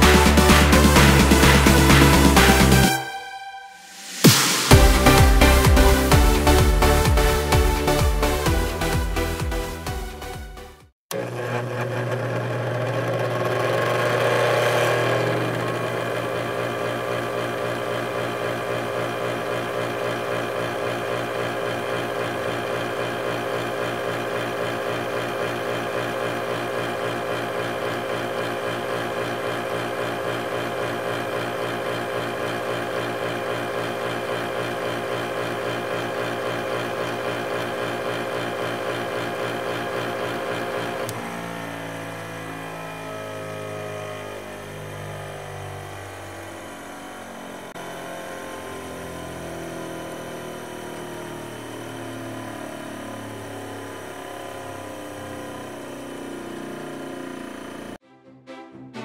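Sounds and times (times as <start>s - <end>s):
background music: 0.0s - 10.9s, 58.0s - 59.0s
juicer motor whining: 11.1s - 58.0s.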